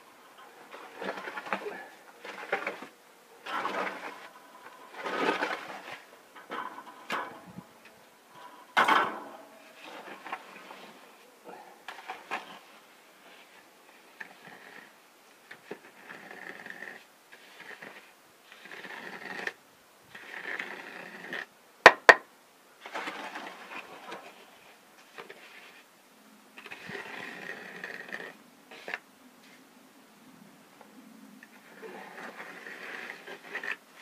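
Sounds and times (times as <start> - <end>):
trowel scraping wet concrete: 0.7 - 7.4, 15.5 - 21.5, 26.6 - 29.0, 31.6 - 34.0.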